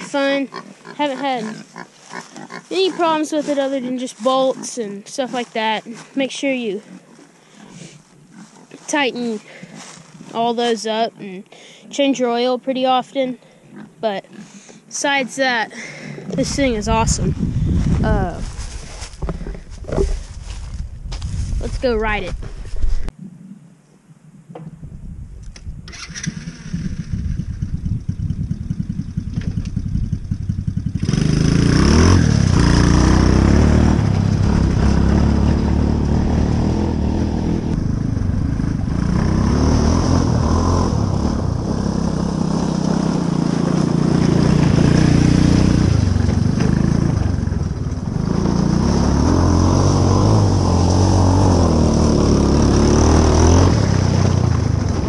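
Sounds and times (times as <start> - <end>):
small engine revving: 25.5 - 55.0.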